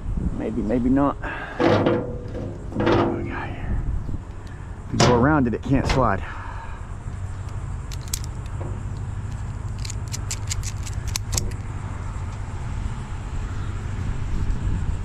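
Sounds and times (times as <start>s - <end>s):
steady low rumble: 0.0s - 15.0s
ratchet strap clicking: 7.4s - 11.6s.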